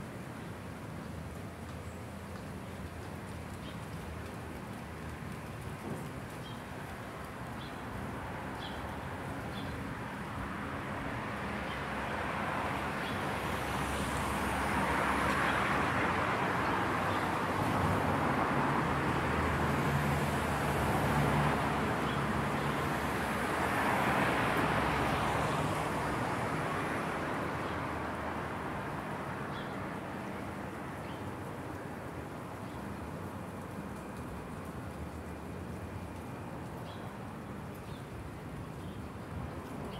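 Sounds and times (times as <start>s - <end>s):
cars passing: 4.3s - 36.9s.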